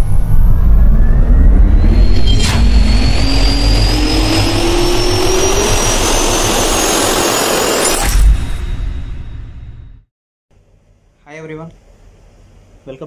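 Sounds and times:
jet engine spooling up: 0.0 - 9.7.

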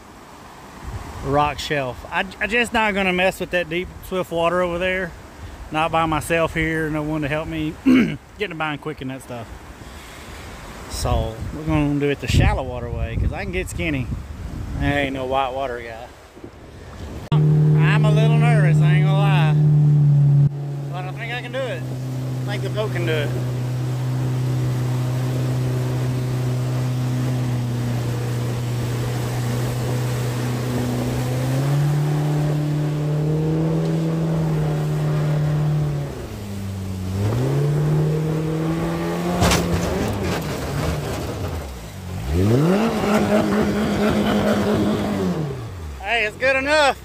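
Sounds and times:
outboard jet motor revving: 16.9 - 46.6.

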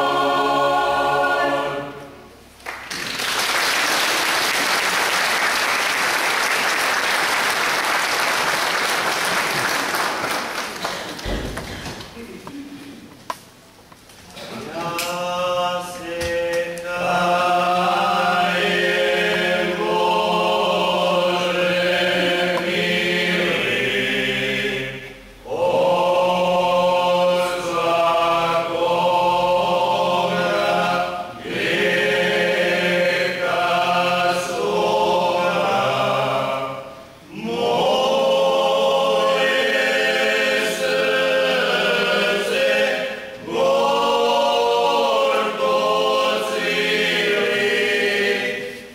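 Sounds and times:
male choir singing a cappella: 0.0 - 2.3, 14.4 - 48.9.

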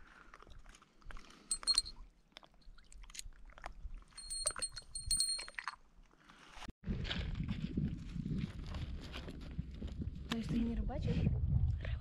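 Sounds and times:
small metal bell tinkling: 1.5 - 2.0, 4.2 - 5.8.

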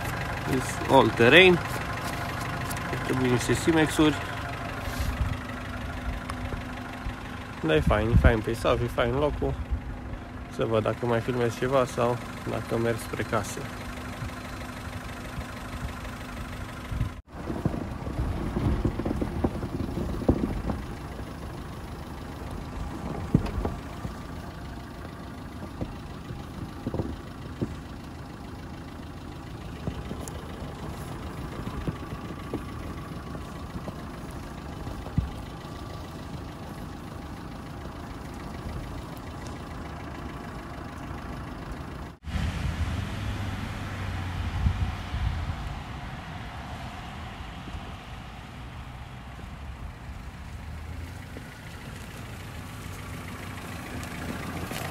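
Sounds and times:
tyres rolling through snow: 0.0 - 9.2, 9.9 - 54.9
car engine running: 0.0 - 54.9
sharp clicks and knocks: 22.9 - 24.5.

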